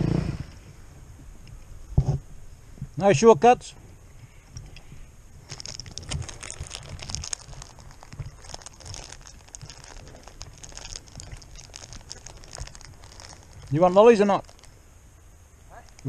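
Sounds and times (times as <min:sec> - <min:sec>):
soft low thumps: 0:03.7 - 0:14.7
plastic wrapper crinkling: 0:05.4 - 0:14.8.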